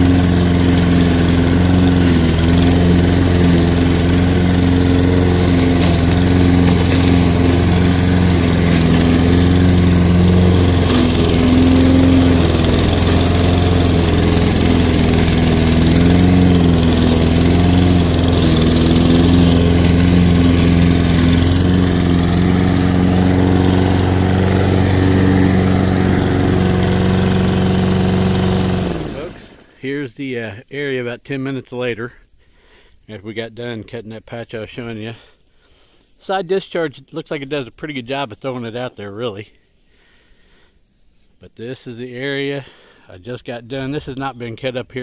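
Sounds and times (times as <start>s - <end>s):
mower cutting tall grass: 0.0s - 29.7s
lawn mower engine running: 0.0s - 29.8s.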